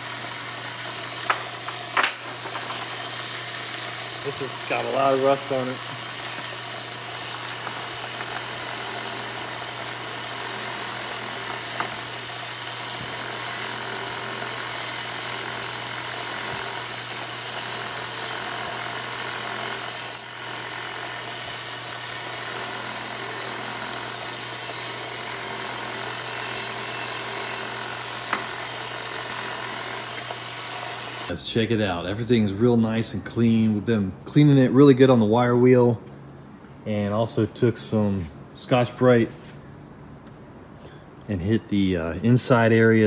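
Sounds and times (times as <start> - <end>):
bench grinder motor hum: 0.0 - 31.3
wire brush scrubbing metal: 2.4 - 12.3, 13.1 - 21.9, 22.7 - 31.3.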